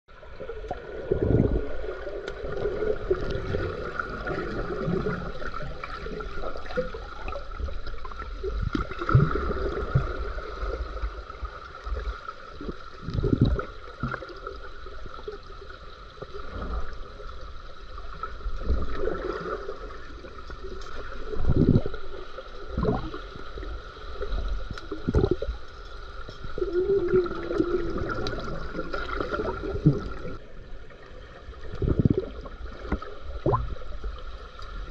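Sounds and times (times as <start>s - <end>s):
muffled underwater water surges: 0.1s - 34.9s.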